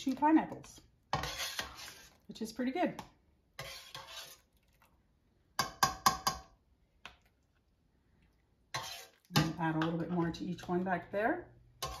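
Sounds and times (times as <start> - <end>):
metal spoon scraping: 0.5 - 2.3, 3.6 - 4.7, 8.7 - 11.1, 11.8 - 12.0.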